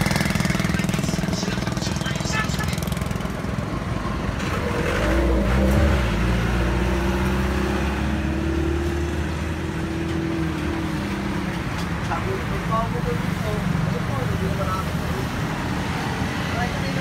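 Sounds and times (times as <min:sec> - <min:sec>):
passing vehicle engine drone: 0:00.0 - 0:11.5.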